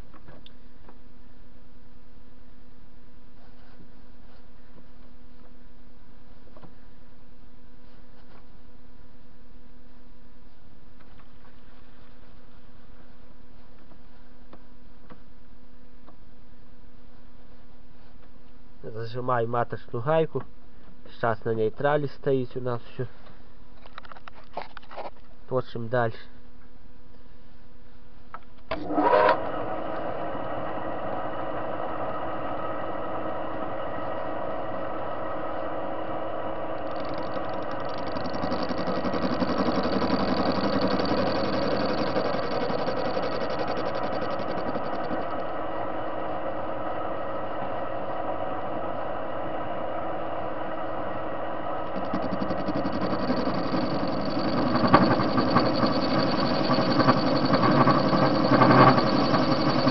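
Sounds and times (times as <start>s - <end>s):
lathe gear drive humming: 33.6s - 48.1s, 49.6s - 59.9s.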